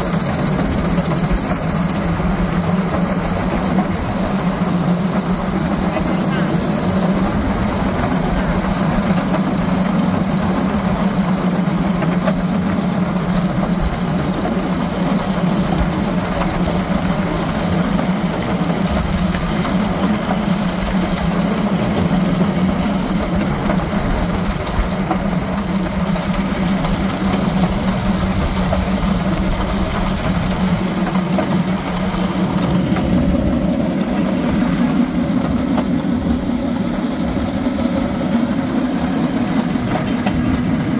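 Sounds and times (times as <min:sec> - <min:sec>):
small engine running: 0:00.0 - 0:40.9
wheels rattling on track: 0:00.0 - 0:40.9.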